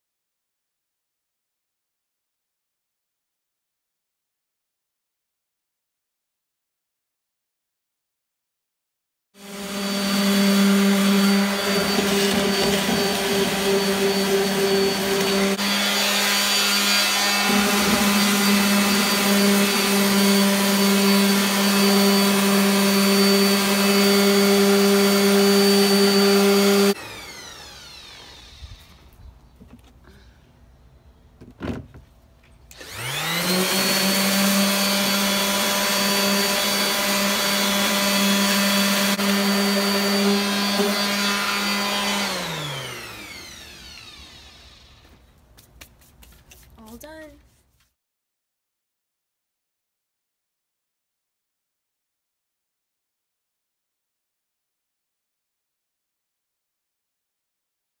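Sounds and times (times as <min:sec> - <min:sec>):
orbital sander running: 0:09.4 - 0:29.2, 0:32.7 - 0:45.2.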